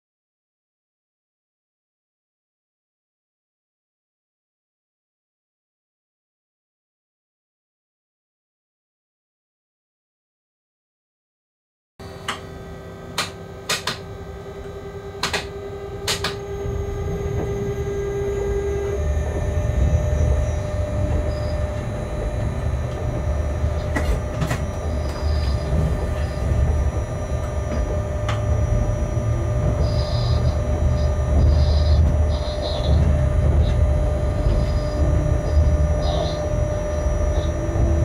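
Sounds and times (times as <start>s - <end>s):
locomotive steady hum: 12.0s - 38.0s
low rumble: 14.1s - 38.0s.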